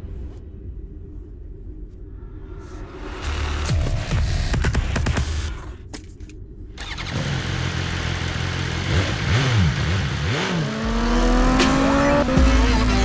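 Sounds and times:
motorcycle engine revving: 0:06.8 - 0:13.0.

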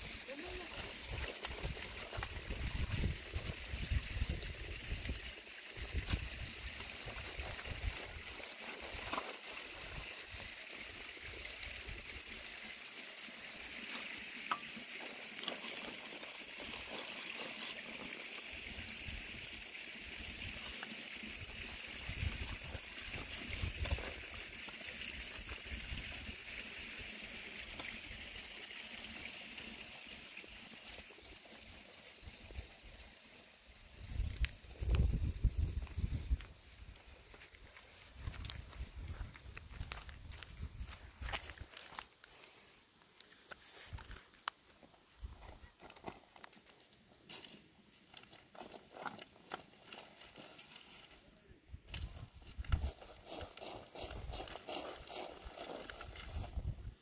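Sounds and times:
earth pattering through sieve: 0:13.6 - 0:19.2, 0:45.7 - 0:57.0.

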